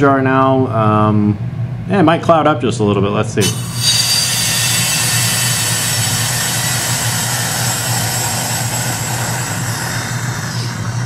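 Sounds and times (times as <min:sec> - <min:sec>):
low hum: 0:03.3 - 0:11.0
air hissing into bell jar: 0:03.4 - 0:11.0.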